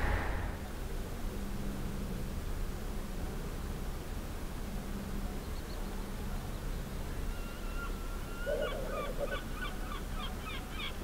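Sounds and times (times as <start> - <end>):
low steady rumble: 0.0 - 5.4
bird calling: 7.3 - 11.0.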